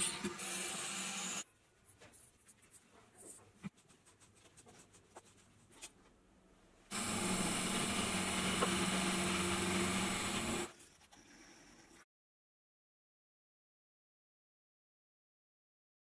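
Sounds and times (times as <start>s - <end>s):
milling machine cutting metal: 0.0s - 1.4s, 6.9s - 10.7s.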